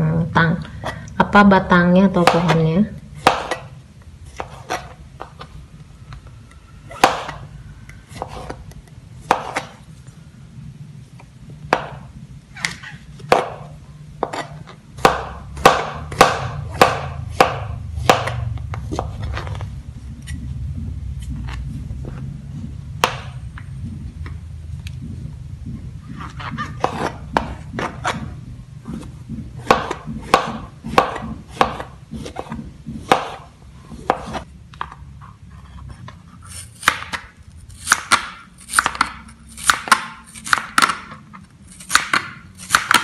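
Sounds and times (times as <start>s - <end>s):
knife tapping cutting board: 28.9s - 33.4s.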